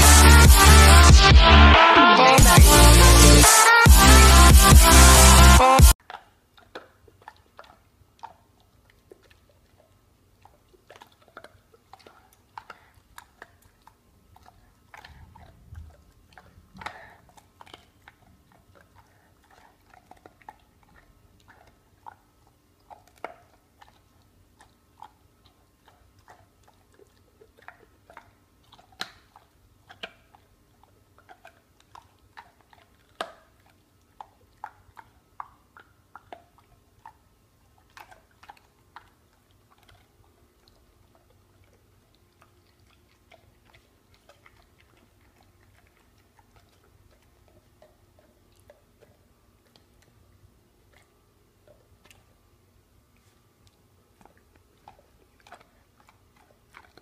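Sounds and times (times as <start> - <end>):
dog teeth cracking on bone: 10.5 - 22.2, 22.8 - 50.2, 53.6 - 57.0.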